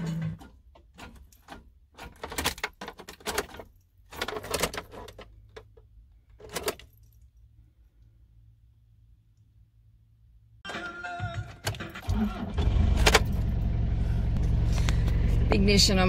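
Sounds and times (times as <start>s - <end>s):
keys jangling in ignition lock: 0.1s - 7.4s.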